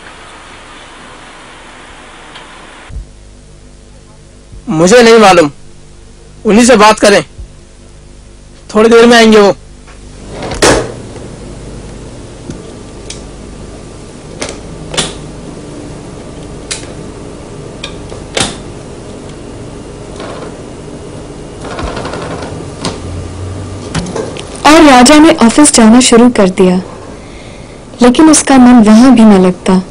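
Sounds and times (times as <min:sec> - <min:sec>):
steady low hum: 0:00.0 - 0:29.9.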